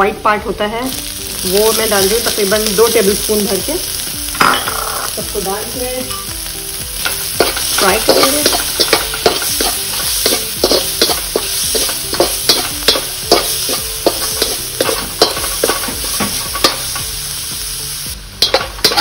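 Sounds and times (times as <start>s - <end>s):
food sizzling in hot oil: 0.0s - 19.0s
metal spatula clanking on wok: 7.0s - 17.1s, 18.4s - 19.0s.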